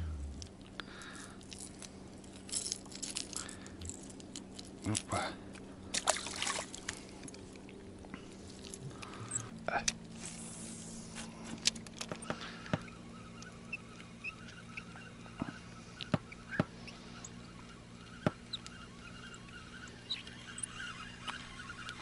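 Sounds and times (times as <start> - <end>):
fishing reel whirring: 10.4 - 22.0
reel clicks and ticks: 16.0 - 22.0.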